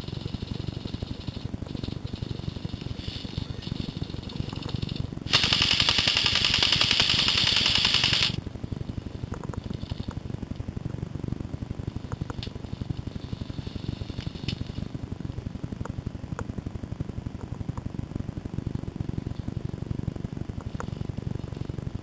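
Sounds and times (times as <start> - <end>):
steady low rumble: 0.0 - 22.0
airsoft rifle full-auto burst: 0.1 - 8.4.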